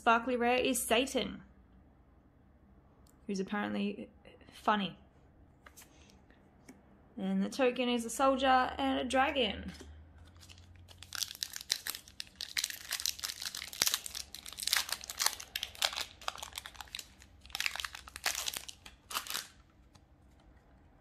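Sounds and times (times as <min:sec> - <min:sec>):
foil wrapper tearing and crinkling: 0:10.3 - 0:20.0.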